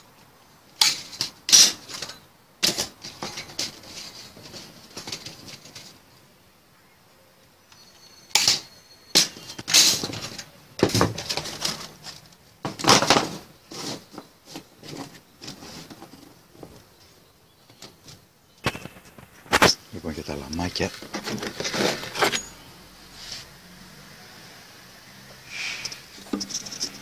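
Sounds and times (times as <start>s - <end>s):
metal pieces clattering on stone: 21.6s - 22.6s, 25.8s - 27.0s.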